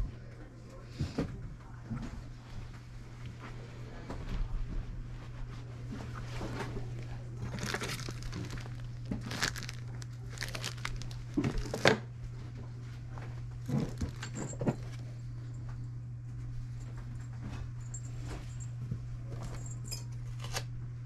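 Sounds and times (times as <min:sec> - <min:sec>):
steady low hum: 0:00.0 - 0:21.0
plastic bags crinkling: 0:07.4 - 0:12.0, 0:13.6 - 0:15.0.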